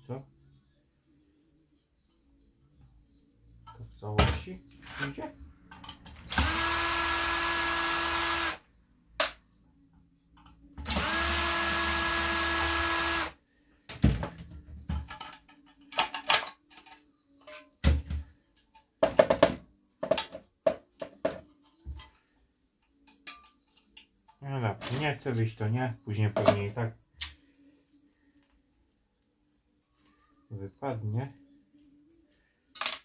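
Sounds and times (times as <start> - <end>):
cordless drill motor whine: 6.3 - 8.6, 10.8 - 13.3
plastic parts and screws clicking: 14.9 - 17.8.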